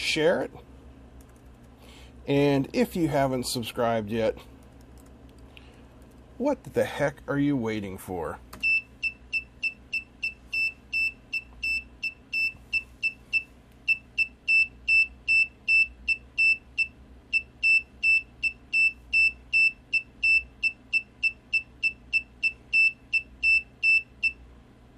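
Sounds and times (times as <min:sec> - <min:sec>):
buzzer beeping morse code: 0:08.6 - 0:24.4.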